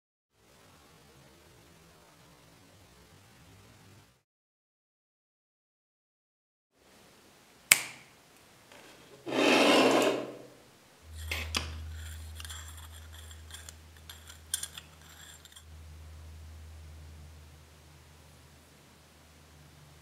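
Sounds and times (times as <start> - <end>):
steady low hum: 10.2 - 20.0.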